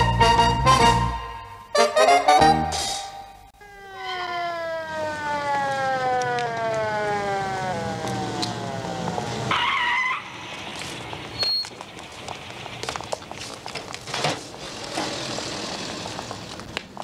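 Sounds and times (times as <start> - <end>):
busy street noise: 2.5 - 17.0
ambulance siren winding down: 3.6 - 13.3.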